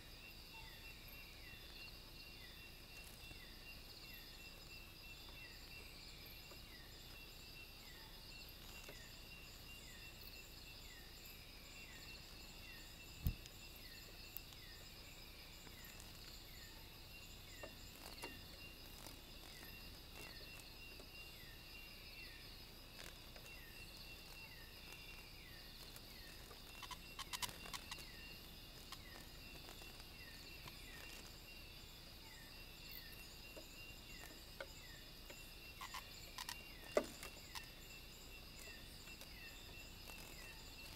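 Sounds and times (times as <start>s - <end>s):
insects trilling: 0.0s - 40.9s
cluster of clicks: 25.8s - 28.1s, 35.3s - 37.7s.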